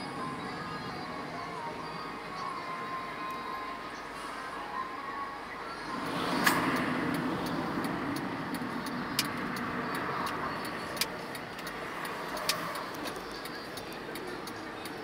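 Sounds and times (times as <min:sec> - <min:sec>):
cars passing: 0:00.0 - 0:15.0
sharp clicks: 0:06.4 - 0:15.0.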